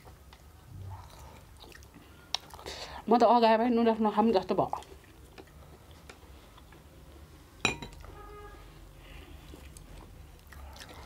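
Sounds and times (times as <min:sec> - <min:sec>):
tableware clinking: 0:07.6 - 0:08.0.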